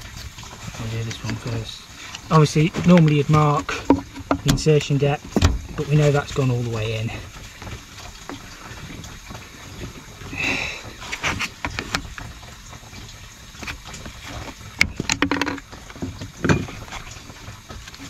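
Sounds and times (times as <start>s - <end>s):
plastic pipe fittings clicking: 2.1s - 5.6s, 11.1s - 12.3s, 13.6s - 17.2s.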